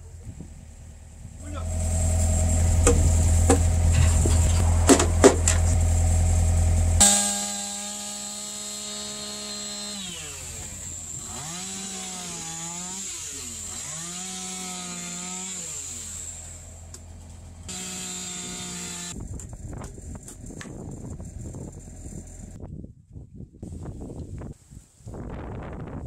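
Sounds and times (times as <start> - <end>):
chainsaw cutting wood: 1.7 - 5.8, 6.8 - 19.2.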